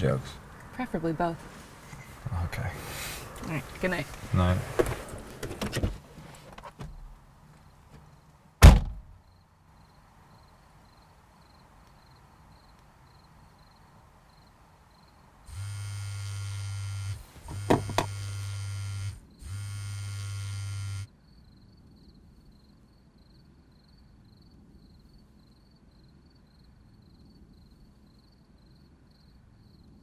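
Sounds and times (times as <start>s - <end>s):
car door shutting: 4.6s - 7.2s, 8.6s - 9.1s, 17.4s - 18.2s
steady buzzing: 15.5s - 21.1s.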